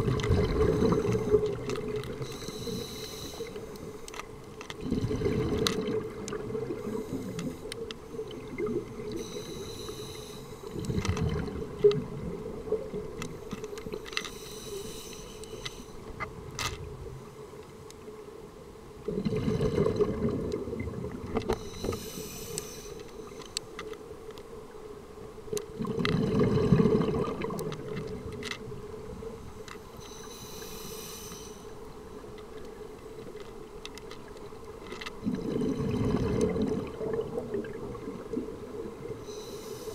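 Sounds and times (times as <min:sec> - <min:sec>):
bubbling exhaled air: 0:00.0 - 0:03.4, 0:04.8 - 0:07.5, 0:19.1 - 0:22.6, 0:25.8 - 0:27.7, 0:35.2 - 0:38.3
regulator hissing inhalations: 0:02.2 - 0:04.1, 0:09.2 - 0:10.8, 0:14.2 - 0:16.0, 0:21.6 - 0:23.6, 0:29.8 - 0:31.8, 0:39.2 - 0:39.9.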